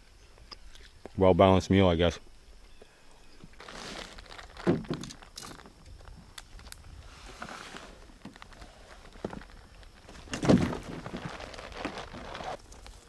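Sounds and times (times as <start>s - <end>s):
rustling of packs and straps: 3.3s - 13.0s
bag thumping into canoe: 3.6s - 5.6s, 7.4s - 12.6s.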